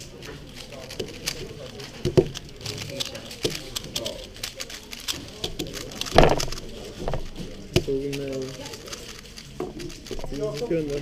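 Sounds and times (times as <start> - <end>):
speed cube clicking and rattling: 0.0 - 11.0.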